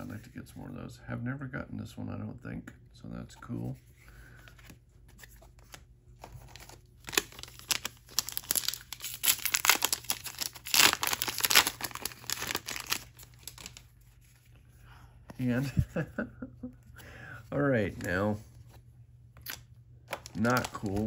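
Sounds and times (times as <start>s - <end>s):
wrapper crackling: 6.5s - 14.0s, 19.4s - 21.0s.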